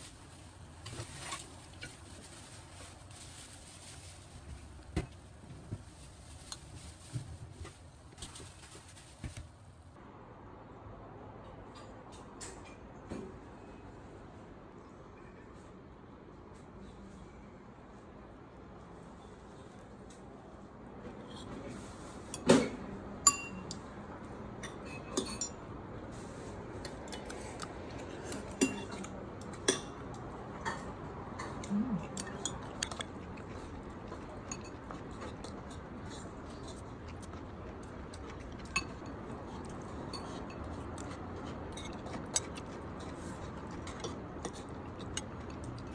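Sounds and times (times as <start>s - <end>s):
spoon clinking on ceramic bowls: 38.3s - 39.2s.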